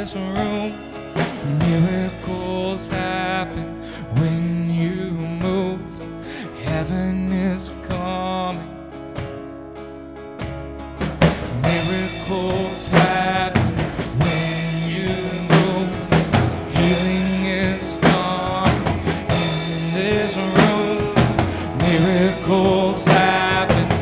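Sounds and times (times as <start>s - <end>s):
drum kit hits: 0.0s - 3.4s, 11.0s - 24.0s
person singing: 0.0s - 8.8s, 11.5s - 24.0s
electric guitar: 0.0s - 24.0s
strummed acoustic guitar: 0.0s - 24.0s.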